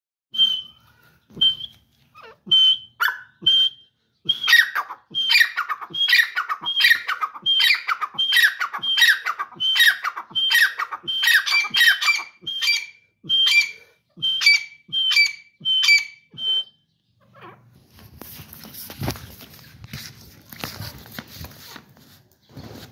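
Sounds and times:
francolin calling: 4.3s - 16.8s.

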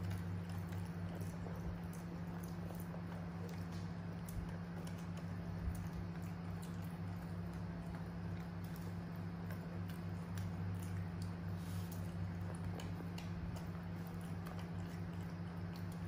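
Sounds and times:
monkeys chewing: 0.0s - 16.0s
steady low hum: 0.0s - 16.0s.

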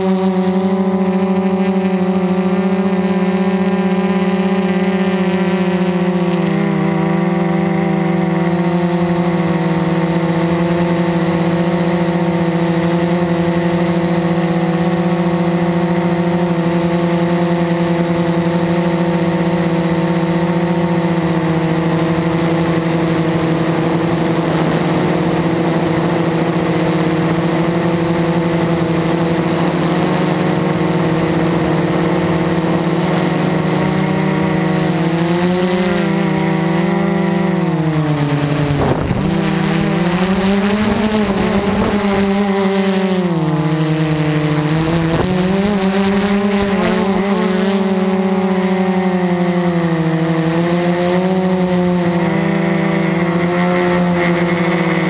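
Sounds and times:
quadcopter propellers buzzing: 0.0s - 55.0s.

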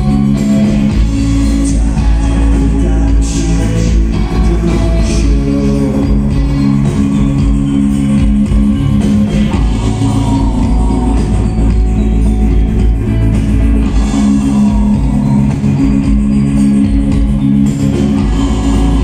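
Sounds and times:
bass guitar: 0.0s - 19.0s
drum kit: 0.0s - 19.0s
electric guitar: 0.0s - 19.0s
person singing: 1.3s - 7.6s, 9.4s - 12.3s, 13.8s - 17.0s, 17.9s - 19.0s.

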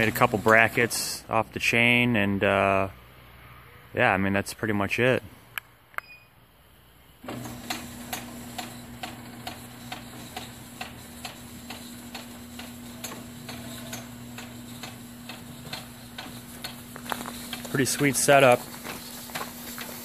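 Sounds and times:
garage door opener humming: 0.0s - 1.3s, 7.2s - 20.0s
regular mechanical clicking: 7.2s - 20.0s.

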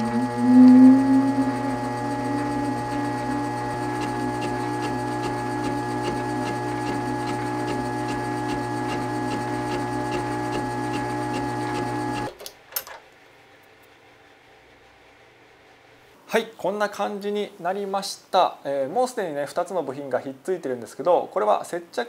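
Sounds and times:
metal lathe motor whine: 0.0s - 12.3s.

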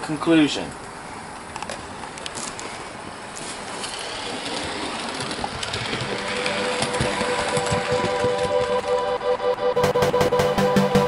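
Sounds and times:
model train rolling on track: 1.6s - 9.8s
small track clicks: 3.4s - 11.0s.

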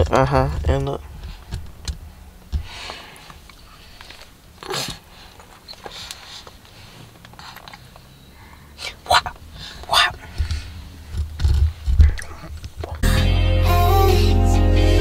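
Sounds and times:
breathy sniffs: 2.6s - 10.9s.

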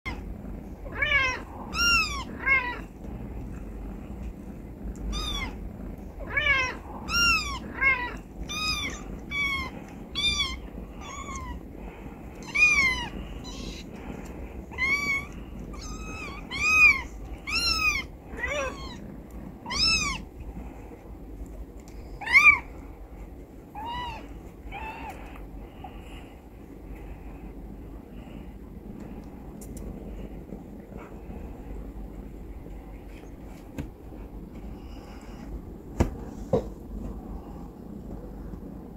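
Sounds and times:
kittens mewing: 0.1s - 3.0s, 5.0s - 20.4s, 22.2s - 22.7s, 23.7s - 25.4s
low steady rumble: 0.1s - 38.9s.

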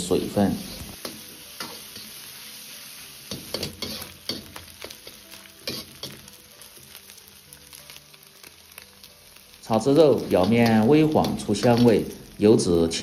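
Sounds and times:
meat sizzling in hot oil: 0.0s - 13.0s
metal ladle scraping a wok: 3.4s - 4.5s.

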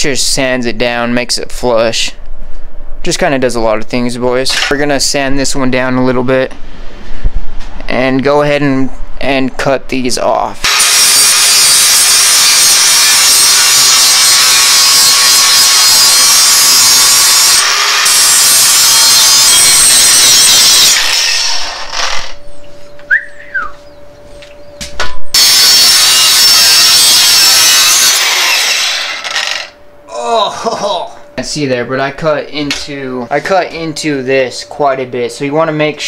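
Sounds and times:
angle grinder grinding metal: 10.6s - 22.6s, 25.3s - 29.8s
grinder disc spinning: 25.4s - 29.8s.

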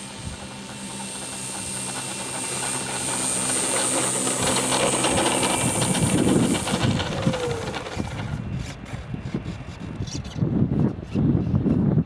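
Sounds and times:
high thin whine: 0.0s - 8.9s
model plane motor and propeller: 0.0s - 11.9s.

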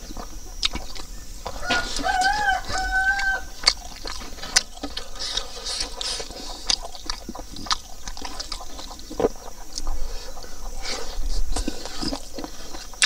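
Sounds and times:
wet chewing and lip-smacking: 0.0s - 13.0s
fingers clicking on food: 0.6s - 9.9s.

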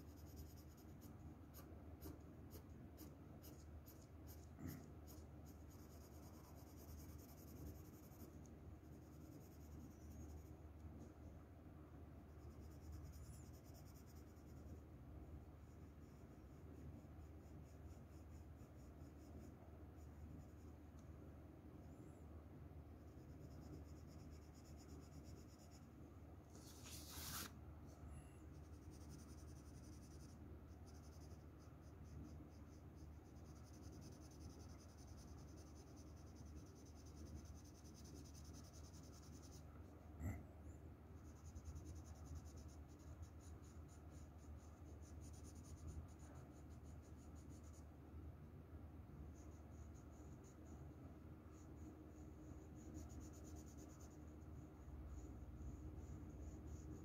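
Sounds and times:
pencil scratching on paper: 0.0s - 11.2s, 12.3s - 14.9s, 15.6s - 20.7s, 23.1s - 25.8s, 26.5s - 27.5s, 28.5s - 40.0s, 41.2s - 47.9s, 51.5s - 54.4s.

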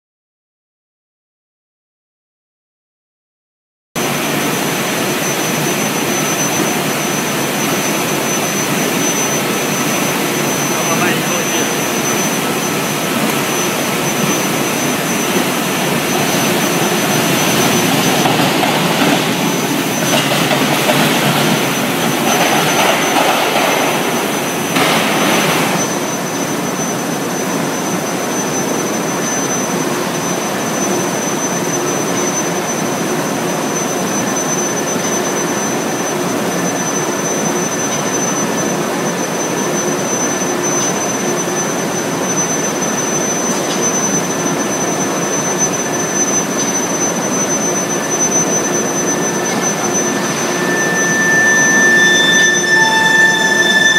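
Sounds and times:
rushing hum: 4.0s - 26.4s, 46.7s - 53.9s
high-pitched whine: 4.0s - 53.9s
industrial machinery drone: 4.0s - 53.9s.

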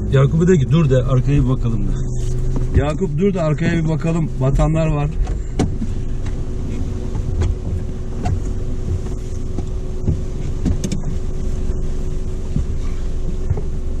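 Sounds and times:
car engine idling: 0.0s - 14.0s
light clicks and knocks: 5.2s - 11.2s.

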